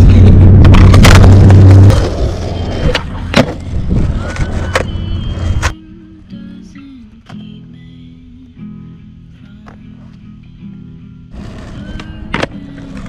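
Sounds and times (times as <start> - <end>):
skateboard rolling on asphalt: 0.0 - 5.7, 11.3 - 13.0
skateboard clacking: 0.7 - 5.8
faint guitar music: 4.2 - 13.0.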